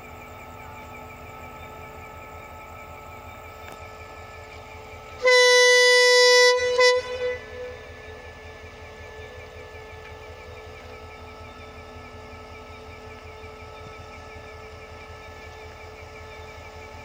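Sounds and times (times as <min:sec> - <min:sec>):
locomotive idling rumble: 0:00.0 - 0:17.0
locomotive horn blast: 0:05.1 - 0:09.9.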